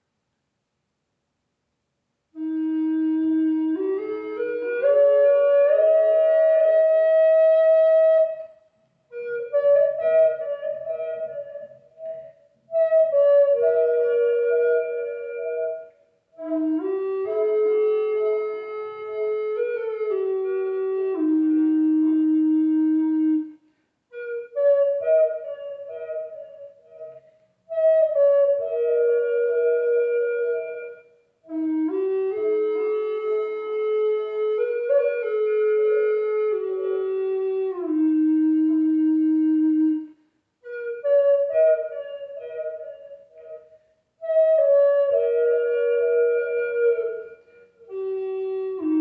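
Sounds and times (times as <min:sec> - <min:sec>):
wooden flute melody: 0:02.3 - 0:49.0.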